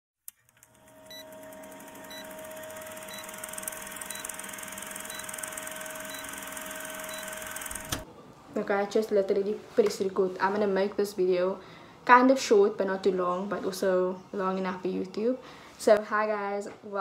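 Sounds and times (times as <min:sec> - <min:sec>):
film projector whirring: 0:00.4 - 0:08.1
short high beeps: 0:06.0 - 0:07.4.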